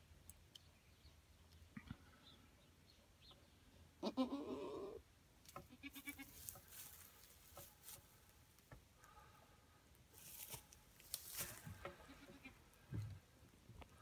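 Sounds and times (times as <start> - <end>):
goat bleating: 4.0 - 5.0, 5.7 - 6.4, 12.0 - 12.6.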